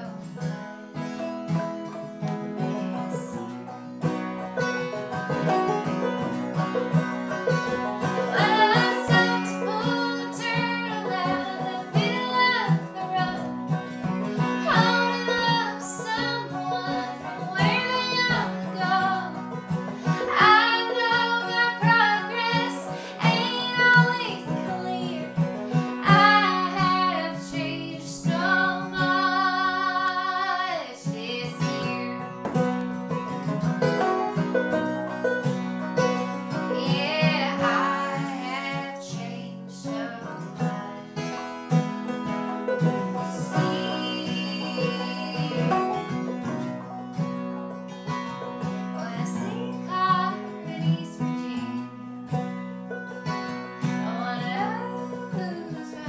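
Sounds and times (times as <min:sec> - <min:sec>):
woman singing: 0:00.0 - 0:00.3, 0:08.2 - 0:13.6, 0:14.3 - 0:19.4, 0:20.0 - 0:32.4, 0:36.5 - 0:41.4, 0:43.0 - 0:46.3, 0:48.8 - 0:52.1, 0:53.8 - 0:56.0
banjo: 0:00.0 - 0:56.0
strummed acoustic guitar: 0:00.0 - 0:56.0.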